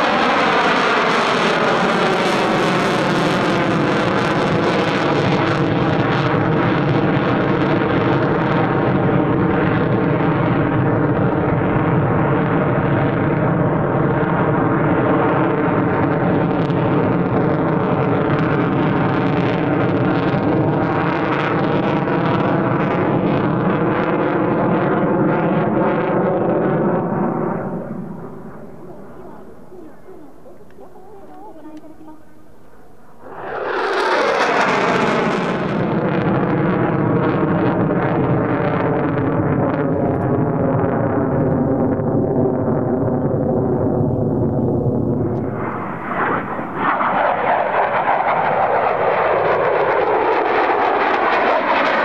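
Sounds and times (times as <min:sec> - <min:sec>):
jet engine roar in flight: 0:00.0 - 0:52.0.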